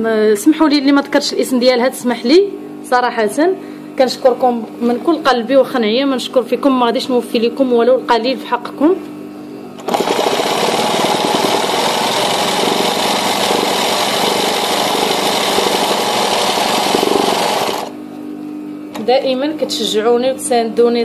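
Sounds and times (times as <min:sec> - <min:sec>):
sewing machine running fast: 0:09.8 - 0:17.9.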